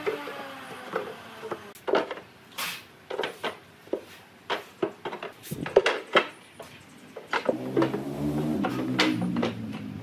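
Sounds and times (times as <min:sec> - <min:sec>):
wooden boards knocking: 0:07.2 - 0:10.0.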